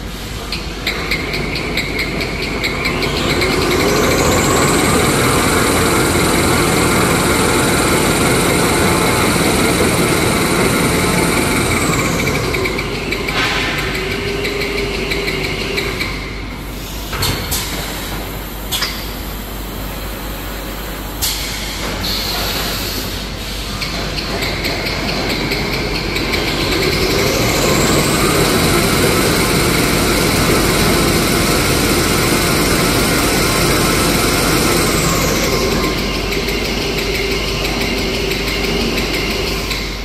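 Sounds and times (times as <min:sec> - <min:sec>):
sharp machine clicks: 0:00.5 - 0:16.5, 0:23.8 - 0:40.0
rising machine whine: 0:00.9 - 0:16.4, 0:24.3 - 0:40.0
paper rewinding machine running: 0:01.0 - 0:13.4, 0:24.5 - 0:40.0.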